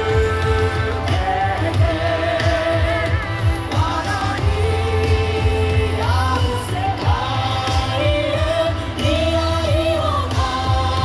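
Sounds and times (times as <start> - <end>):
heavy drum beat: 0.0 - 11.0
person singing: 0.0 - 11.0.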